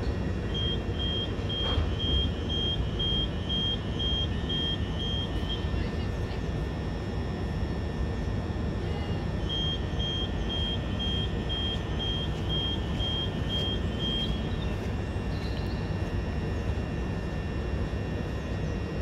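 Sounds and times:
electric train humming: 0.0s - 19.0s
door warning beeps: 0.4s - 5.9s, 9.4s - 15.0s.

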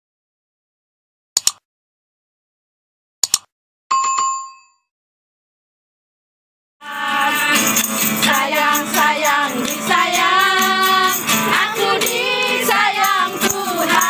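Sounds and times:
strummed acoustic guitar: 6.8s - 14.0s
women singing praise song: 6.8s - 14.0s.

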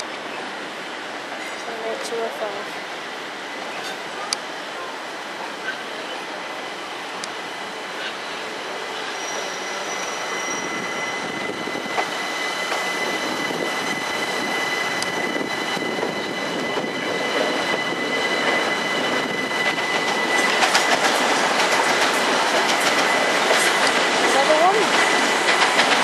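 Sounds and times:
train wheels on rails: 0.0s - 26.0s
high-pitched wheel squeal: 9.0s - 20.6s.

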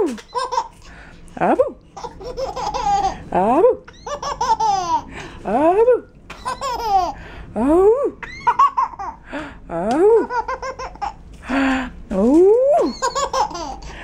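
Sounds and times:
baby laughing: 0.1s - 0.9s, 2.0s - 3.3s, 3.9s - 5.1s, 6.3s - 7.2s, 8.2s - 9.2s, 10.1s - 11.2s, 12.8s - 14.0s.

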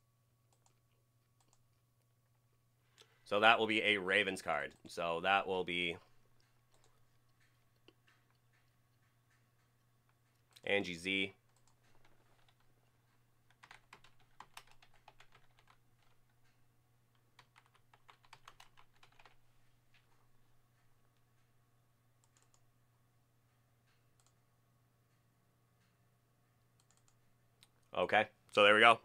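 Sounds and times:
typing on computer keyboard: 0.5s - 0.8s, 1.4s - 1.6s, 6.4s - 10.7s, 11.5s - 12.8s, 13.5s - 19.4s, 22.2s - 22.6s, 26.8s - 27.2s.

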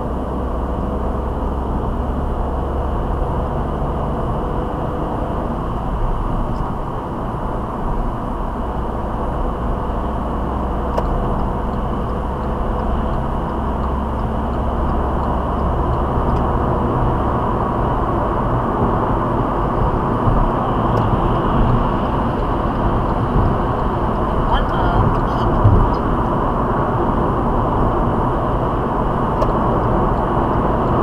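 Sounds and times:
car engine: 0.0s - 31.0s
tyres on tarmac: 5.1s - 31.0s
wind noise: 14.2s - 31.0s.

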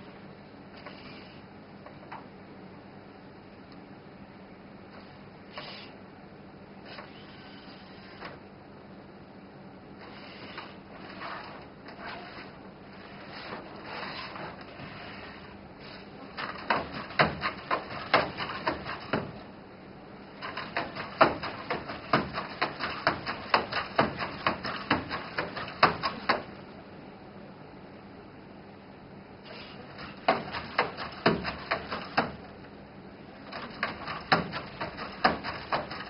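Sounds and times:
robot joint motors whirring: 0.8s - 1.4s, 5.5s - 5.9s, 6.8s - 8.4s, 10.0s - 16.1s
plastic body shifting: 16.2s - 19.5s, 20.3s - 26.6s, 29.5s - 32.6s, 33.4s - 36.0s.

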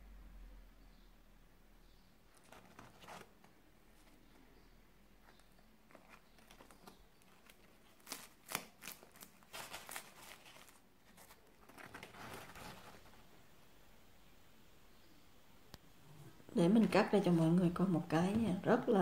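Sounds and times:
fried dough crinkling on paper: 5.3s - 13.2s.

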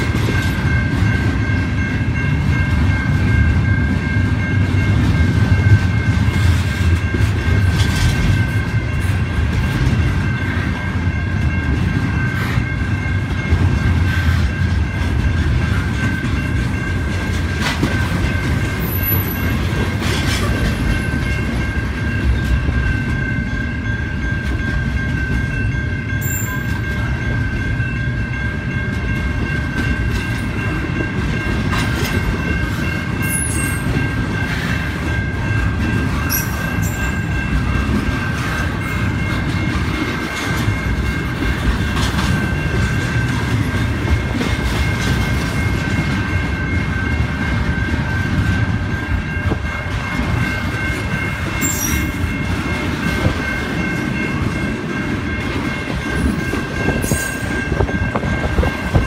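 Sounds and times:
wheels clacking over rail joints: 0.0s - 23.4s
high ringing tone: 0.0s - 59.0s
train wheels rumbling on rails: 0.0s - 59.0s.

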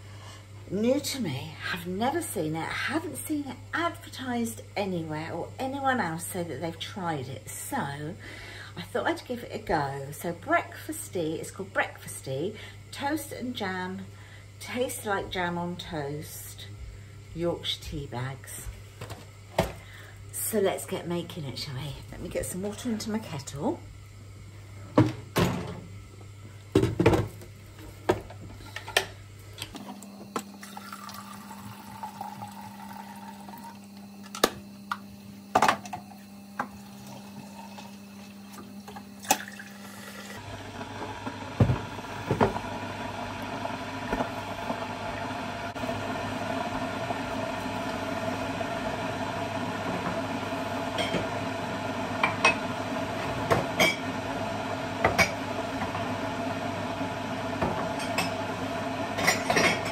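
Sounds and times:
kettle heating rushing sound: 27.7s - 59.9s
water running into kettle: 29.7s - 34.5s, 35.5s - 59.9s.

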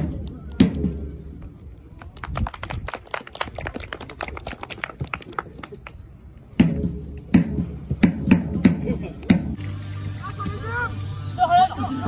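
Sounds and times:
crowd applauding: 2.0s - 6.0s.

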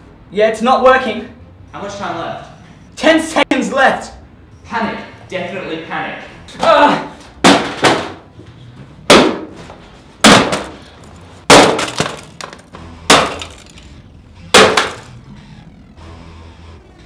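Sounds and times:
hammer smashing laptop: 10.2s - 10.8s, 11.5s - 13.7s, 14.5s - 15.1s.

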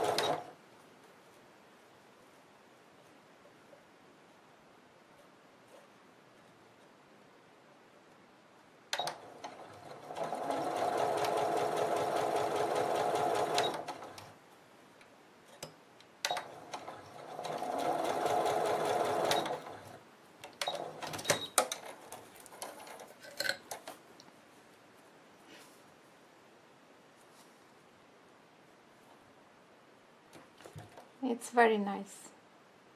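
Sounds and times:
sewing machine stitching: 0.0s - 0.5s, 9.0s - 14.3s, 16.3s - 20.0s.

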